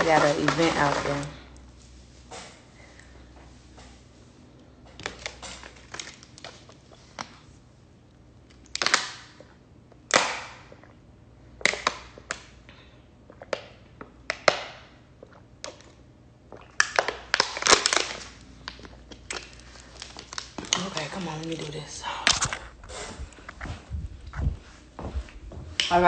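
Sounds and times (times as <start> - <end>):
plastic bottle crackling: 0.0 - 1.4, 5.0 - 7.3, 16.7 - 23.6.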